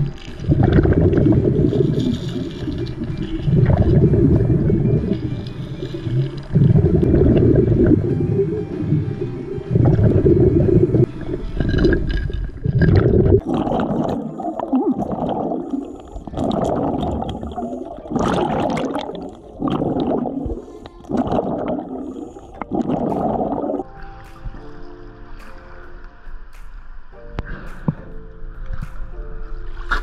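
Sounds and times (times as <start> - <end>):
underwater bubbles gurgling: 0.0 - 24.0
low underwater rumbling: 0.0 - 30.0.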